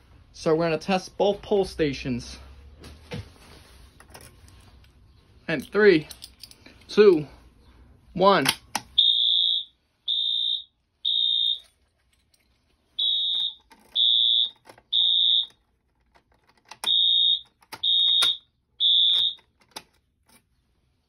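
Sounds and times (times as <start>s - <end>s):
fire alarm horn blasts: 9.0s - 11.7s, 13.0s - 15.5s, 16.8s - 19.4s.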